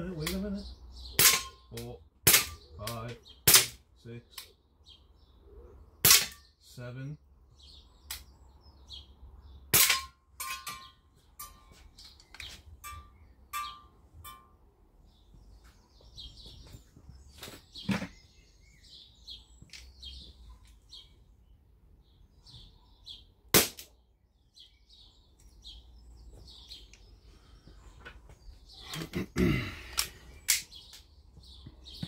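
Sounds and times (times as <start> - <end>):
birds chirping: 0.0 - 32.0
air pistol shot: 3.5 - 3.8, 6.0 - 6.4, 23.5 - 23.9.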